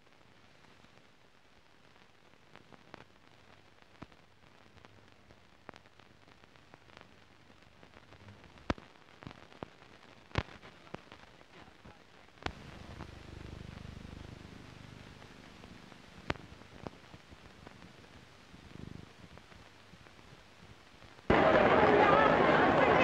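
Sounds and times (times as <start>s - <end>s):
film crackle clicks and pops: 0.0s - 21.6s
film soundtrack hiss: 0.0s - 23.0s.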